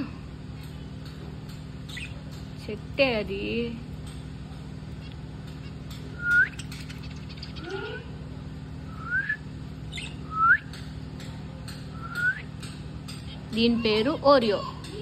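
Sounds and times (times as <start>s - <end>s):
low steady hum: 0.0s - 15.0s
budgerigars chirping: 1.8s - 2.5s, 4.9s - 8.1s, 9.8s - 10.3s.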